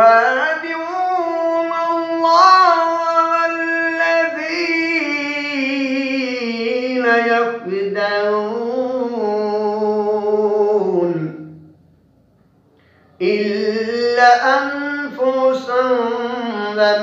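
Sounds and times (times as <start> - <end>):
man reciting melodically: 0.0 - 11.7, 13.2 - 17.0.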